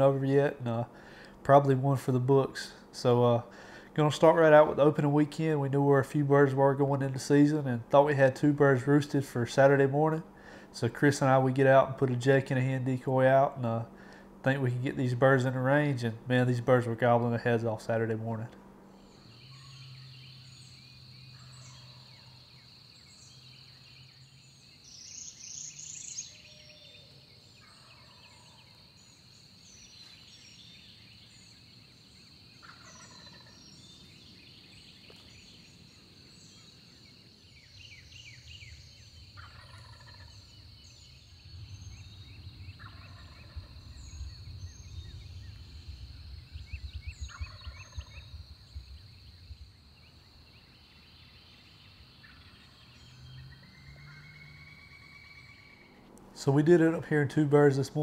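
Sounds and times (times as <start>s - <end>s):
songbirds chirping: 0.0s - 58.0s
turkeys gobbling: 27.6s - 28.6s, 32.6s - 33.6s, 39.4s - 40.6s, 42.8s - 44.1s, 47.3s - 48.2s
low rumble: 40.3s - 50.9s.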